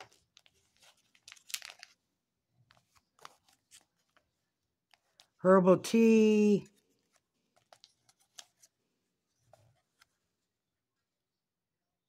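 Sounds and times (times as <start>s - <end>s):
plastic and paper packaging crinkling: 0.0s - 2.1s.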